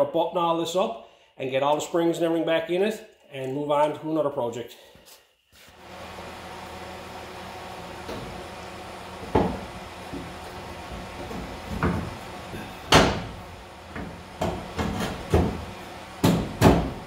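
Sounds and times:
metal clunks and knocks: 9.2 - 10.4, 11.0 - 12.2, 12.8 - 17.0.

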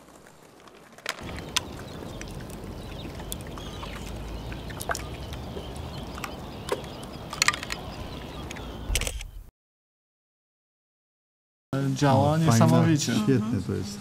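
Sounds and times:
low wind rumble: 0.0 - 9.5
bird calls: 0.2 - 9.5
sharp clicks: 6.2 - 9.5.

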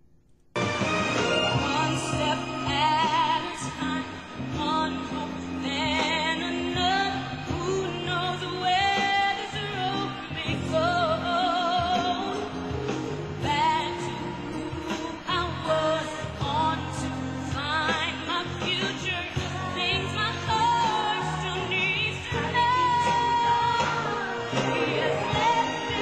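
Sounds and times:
sustained instrumental chords: 0.6 - 5.8, 22.5 - 26.0
woman singing a slow ballad: 1.6 - 26.0.

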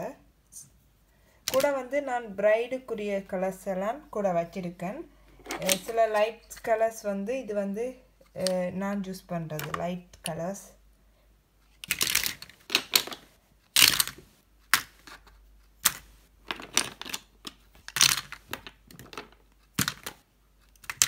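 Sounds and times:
plastic tubes clicking together: 11.8 - 13.2, 13.8 - 15.2, 15.8 - 21.0.

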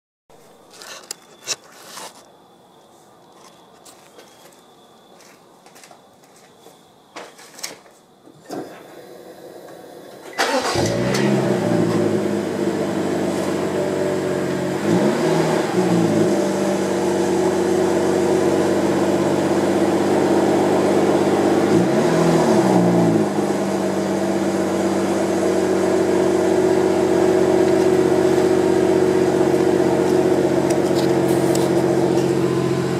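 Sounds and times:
car engine starting and idling: 8.5 - 32.9.

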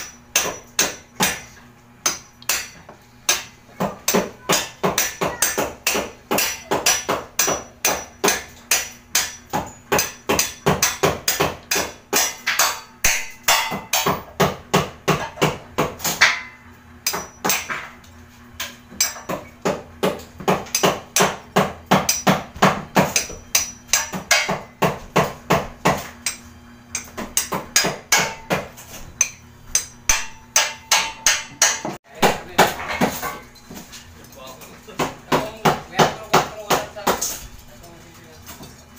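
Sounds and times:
hand hammer striking: 0.0 - 17.9, 18.6 - 33.3, 35.0 - 37.3.

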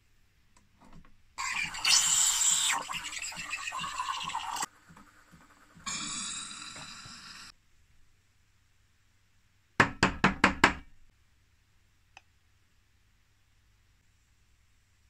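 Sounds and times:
steam wand hissing: 1.4 - 7.5.

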